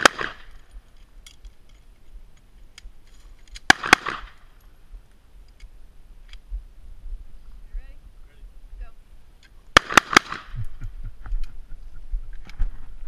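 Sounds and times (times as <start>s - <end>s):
handgun shots with echo: 0.0s - 0.5s, 3.6s - 4.4s, 9.8s - 10.5s.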